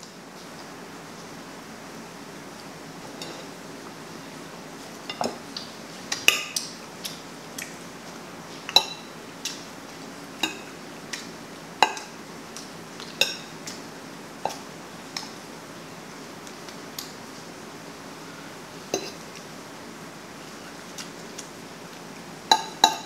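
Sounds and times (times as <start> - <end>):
cutlery clinking against a dish: 22.5 - 23.0.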